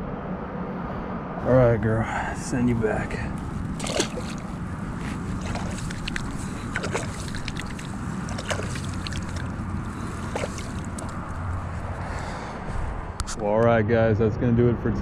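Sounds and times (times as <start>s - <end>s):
pond water sloshing and splashing: 3.3s - 12.2s.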